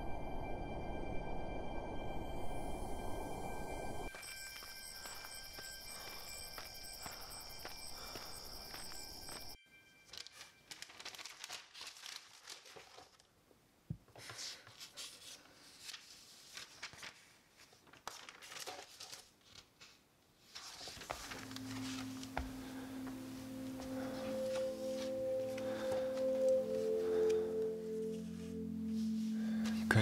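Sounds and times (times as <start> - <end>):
paper rustling and crinkling: 10.1 - 13.4, 14.2 - 22.9
soft music of low notes: 20.8 - 30.0.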